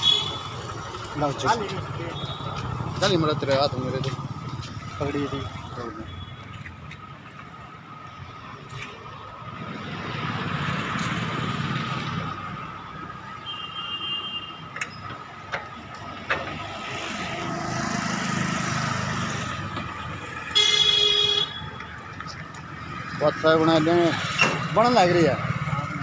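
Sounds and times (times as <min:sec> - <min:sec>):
vehicle horn honking: 0:00.0 - 0:00.6, 0:13.4 - 0:14.6, 0:20.6 - 0:21.7
vehicles passing: 0:00.0 - 0:26.0.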